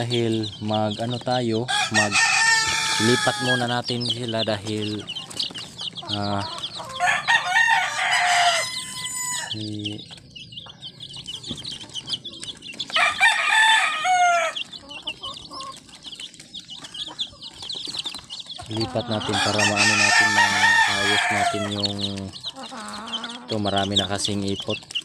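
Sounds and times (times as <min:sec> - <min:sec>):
chicks peeping: 0:00.0 - 0:25.0
rooster crowing: 0:01.7 - 0:03.8, 0:06.7 - 0:09.6, 0:12.9 - 0:14.8, 0:19.0 - 0:21.9.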